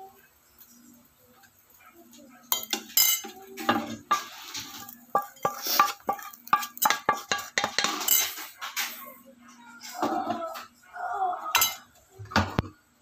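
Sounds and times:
spatula clattering in frying pan: 2.5s - 9.0s, 11.6s - 11.9s.

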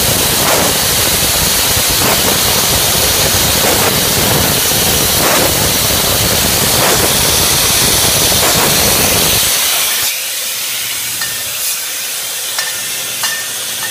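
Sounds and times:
bottling machinery hissing: 0.0s - 13.9s
light hiss: 0.2s - 10.2s.

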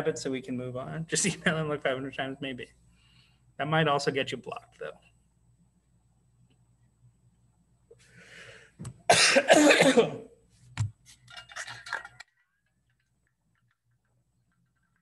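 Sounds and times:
man coughing: 9.1s - 10.3s.

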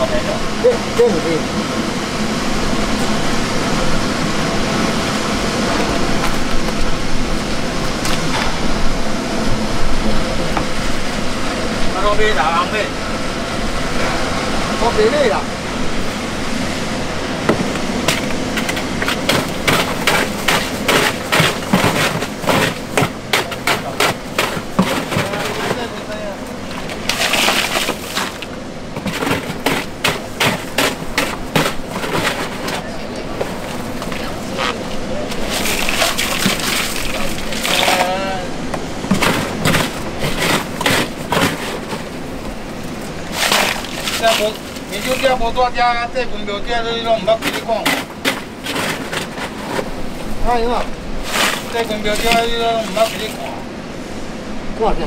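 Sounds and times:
boat engine droning: 0.0s - 55.0s
ice crunching in a cooler: 18.0s - 45.7s, 46.8s - 53.6s.

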